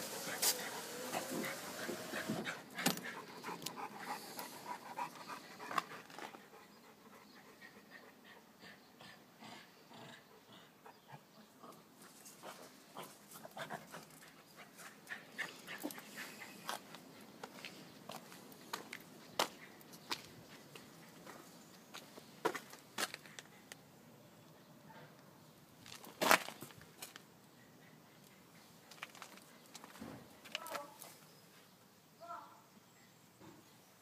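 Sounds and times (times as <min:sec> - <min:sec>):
panting breath: 0:00.4 - 0:11.1, 0:14.9 - 0:17.3.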